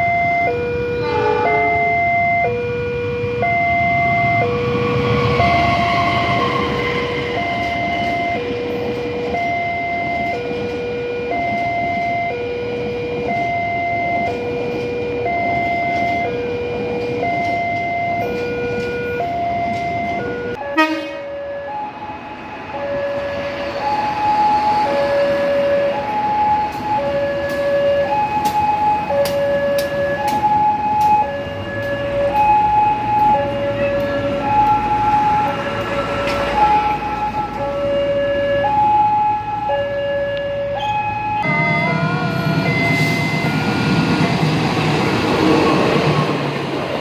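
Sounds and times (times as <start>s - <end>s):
crossing signal alternating tones: 0.0s - 46.0s
train rumbling past on rails: 0.0s - 47.0s
higher-pitched crossing signal: 3.4s - 10.5s, 22.8s - 45.8s.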